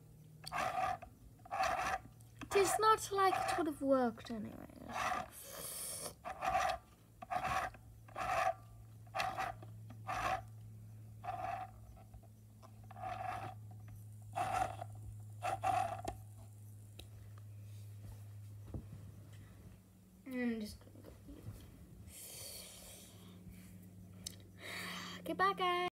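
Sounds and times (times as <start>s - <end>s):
steady low hum: 0.0s - 25.9s
short rasping scrapes: 0.5s - 3.7s, 4.8s - 10.5s, 11.2s - 11.8s, 12.8s - 13.6s, 14.3s - 16.2s.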